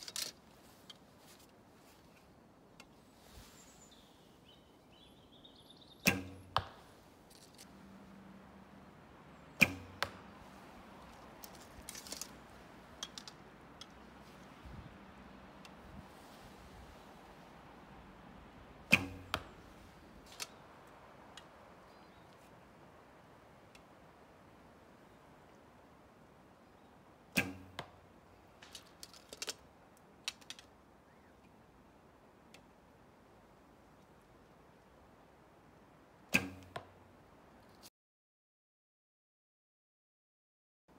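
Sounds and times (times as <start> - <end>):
clicks and rustles of handling: 0.0 - 3.0, 7.2 - 7.8, 11.0 - 14.6, 20.2 - 21.5, 28.6 - 30.8
bowstring twang: 6.0 - 6.9, 9.6 - 10.3, 18.8 - 19.6, 27.4 - 28.0, 36.3 - 36.9
arrow striking target: 6.0 - 7.0, 9.6 - 10.4, 18.8 - 19.7, 27.4 - 28.0, 36.3 - 37.0
bowstring crack: 6.0 - 7.8, 9.6 - 14.6, 18.8 - 21.6, 27.4 - 28.0, 28.6 - 29.6, 30.2 - 31.6, 36.3 - 36.9.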